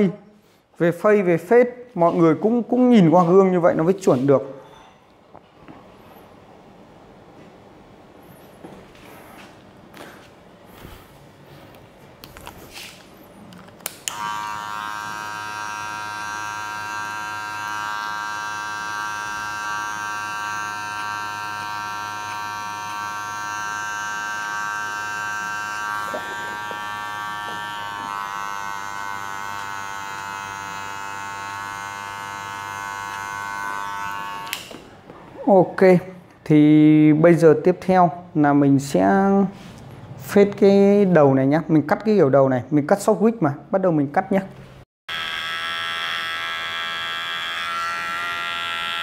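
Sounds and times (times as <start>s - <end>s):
hair clipper whining: 13.8s - 35.0s, 45.1s - 49.0s.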